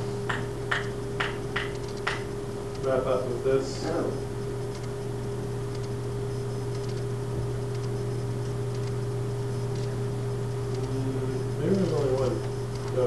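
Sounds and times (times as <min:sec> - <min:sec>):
steady low hum: 0:00.0 - 0:13.0
faint ticks: 0:05.7 - 0:06.0, 0:06.7 - 0:09.0, 0:10.7 - 0:11.0.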